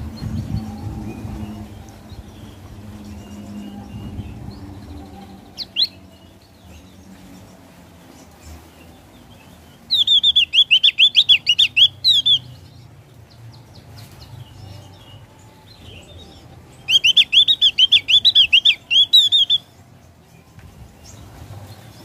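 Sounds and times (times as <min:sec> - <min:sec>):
soft bird chirps: 0:00.2 - 0:21.3
bird chattering song: 0:02.4 - 0:06.8, 0:09.4 - 0:12.8, 0:15.9 - 0:19.8.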